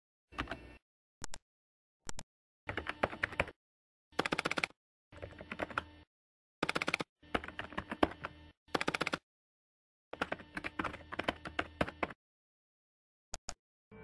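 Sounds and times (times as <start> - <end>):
keyboard typing: 2.1 - 3.6, 4.2 - 5.9, 6.6 - 9.2, 10.2 - 12.2.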